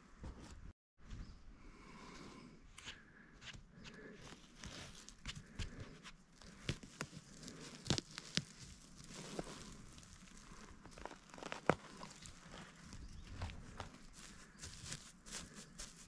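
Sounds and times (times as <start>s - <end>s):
needles and twigs rustling: 4.0s - 16.0s
twigs snapping: 6.4s - 16.0s.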